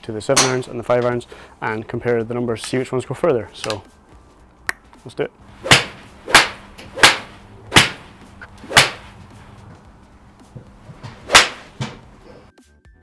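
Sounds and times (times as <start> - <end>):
faint music: 0.0 - 13.0
golf club striking ball: 5.6 - 9.3, 11.0 - 12.2.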